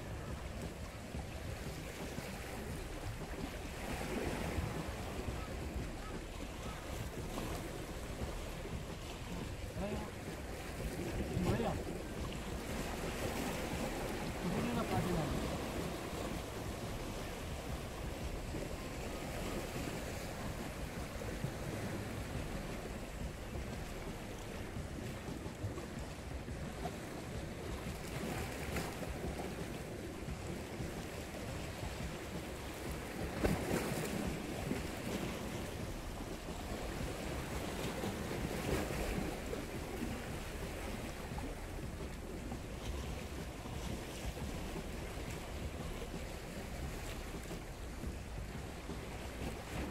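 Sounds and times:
sea waves against rocks: 0.0 - 49.9
wind buffeting microphone: 0.0 - 49.9.

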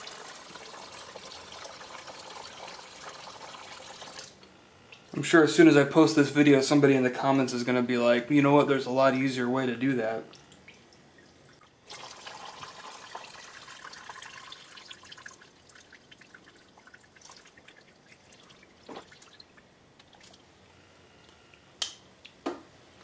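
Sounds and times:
gasoline trickling from hose: 0.0 - 4.4, 10.3 - 20.4.

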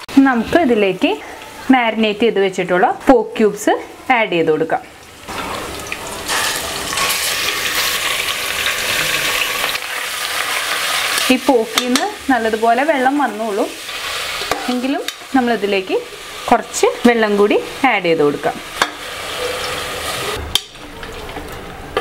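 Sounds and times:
meat sizzling in hot oil: 4.1 - 20.5.

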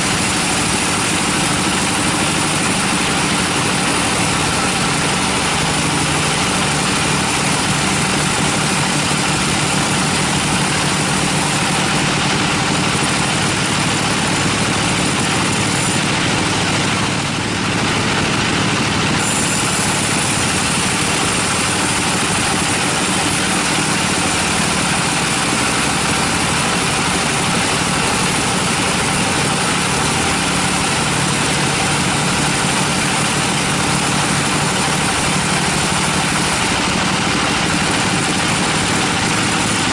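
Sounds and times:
band saw cutting log: 0.0 - 39.9.

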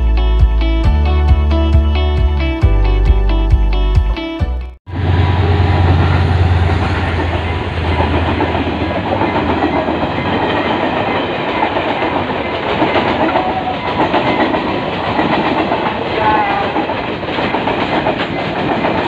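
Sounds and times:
locomotive engine humming: 4.9 - 18.6
train wheels clattering: 5.5 - 19.0.

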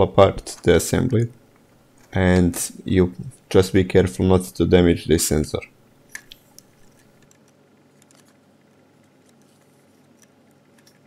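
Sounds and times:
small plastic parts clicking: 6.1 - 11.0.

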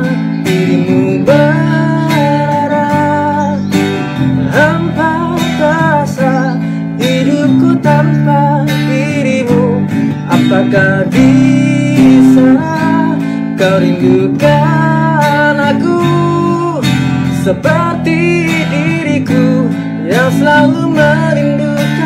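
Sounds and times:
electric bass guitar: 0.0 - 22.0
man singing pop ballad: 0.0 - 22.0
strummed acoustic guitar: 0.0 - 22.0.

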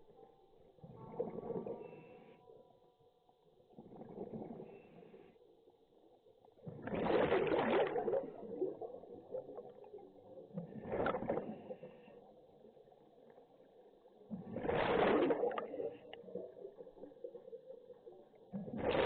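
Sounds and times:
underwater breath bubbling: 14.3 - 16.5.

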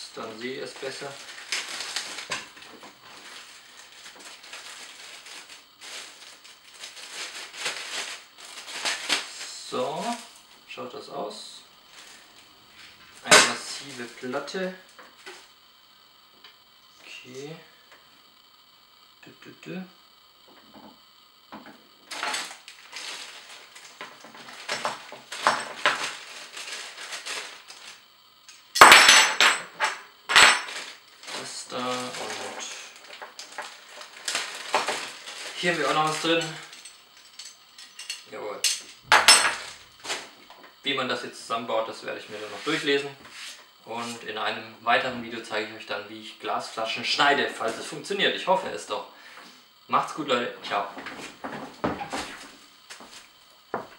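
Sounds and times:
plastic bag crinkling: 0.8 - 9.4, 22.1 - 28.0, 30.5 - 36.6
small metal parts clinking: 22.1 - 32.4, 33.0 - 39.8.

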